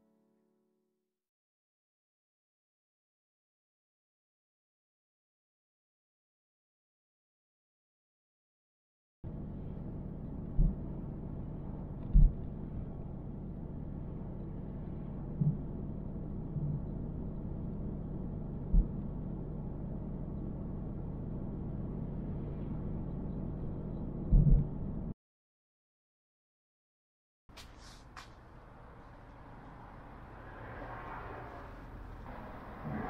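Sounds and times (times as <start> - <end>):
car cabin road rumble: 9.3 - 25.1, 27.5 - 33.0
low thumps: 18.6 - 19.2, 24.2 - 24.9.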